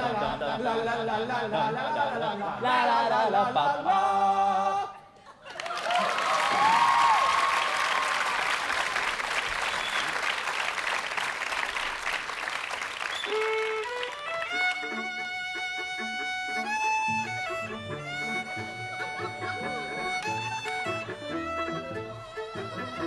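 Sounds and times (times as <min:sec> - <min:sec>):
audience applause: 0:05.5 - 0:16.2
violin playing: 0:13.3 - 0:23.0.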